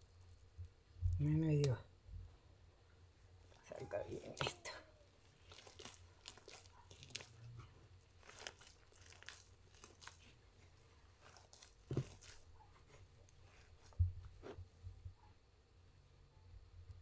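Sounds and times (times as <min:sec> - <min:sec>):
dry mix crunching in hand: 0:03.5 - 0:14.0.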